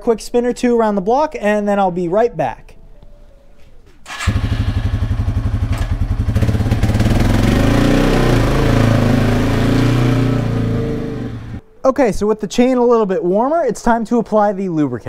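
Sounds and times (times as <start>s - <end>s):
motorcycle engine starting and revving: 4.1s - 11.6s.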